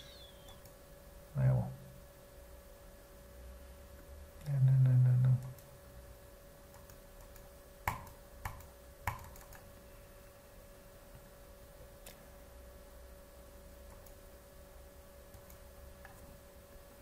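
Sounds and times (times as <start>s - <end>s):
computer mouse clicks: 6.7s - 9.7s, 13.9s - 14.2s, 15.3s - 16.3s.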